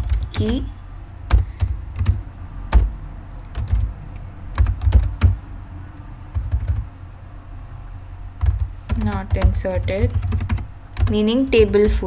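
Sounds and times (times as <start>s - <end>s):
typing on keyboard: 0.0s - 0.7s, 1.3s - 5.4s, 6.3s - 6.9s, 8.4s - 12.0s.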